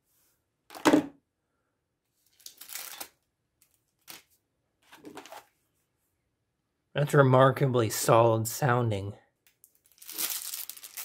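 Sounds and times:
plastic rustle: 9.7s - 11.0s.

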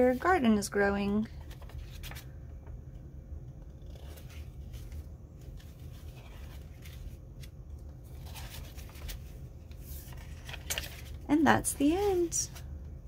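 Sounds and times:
paper pages rustling: 1.3s - 2.4s, 3.7s - 12.7s.

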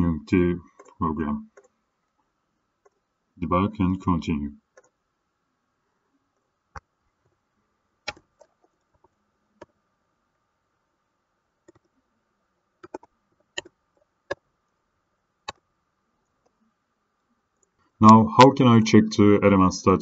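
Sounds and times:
keyboard keys clicking: 12.8s - 13.7s.

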